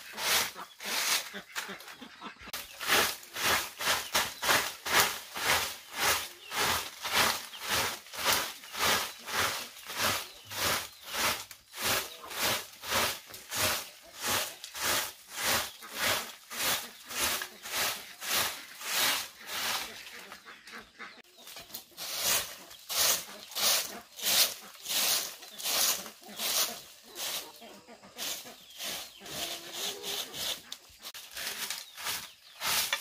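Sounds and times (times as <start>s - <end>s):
rhythmic scraping: 2.8s - 20.8s, 21.9s - 33.0s.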